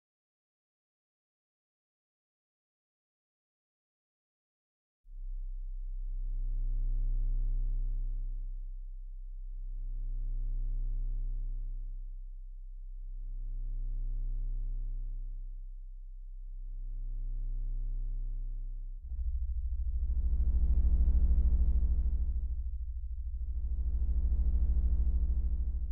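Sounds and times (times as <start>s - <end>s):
low synthesized drone: 16.3s - 25.9s
buzzy low tone: 16.6s - 25.9s.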